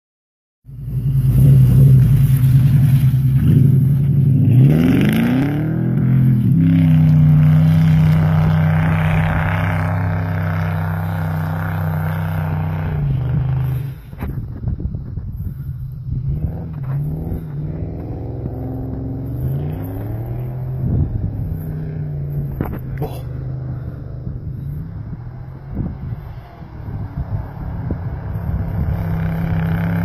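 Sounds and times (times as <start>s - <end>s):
car engine revving hard: 1.1s - 14.0s, 16.3s - 30.0s.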